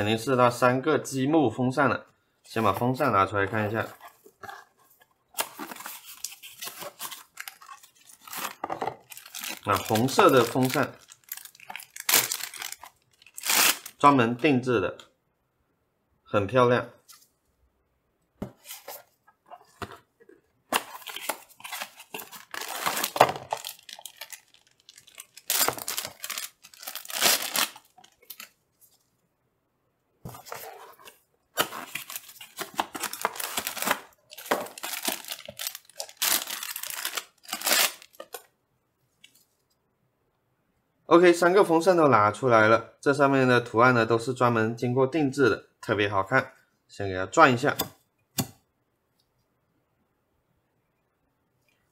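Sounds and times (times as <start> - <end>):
packaging torn and crinkled: 5.4 - 14.0, 20.7 - 28.6, 31.6 - 38.4.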